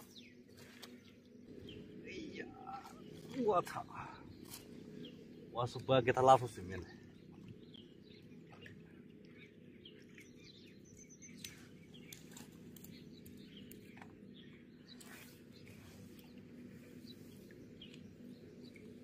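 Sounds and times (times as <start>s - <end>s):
faint bird chirps: 0.0s - 5.8s.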